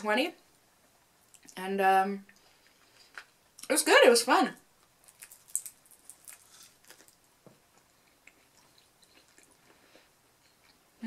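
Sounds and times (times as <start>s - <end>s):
soft chewing: 1.2s - 1.6s, 4.8s - 11.0s.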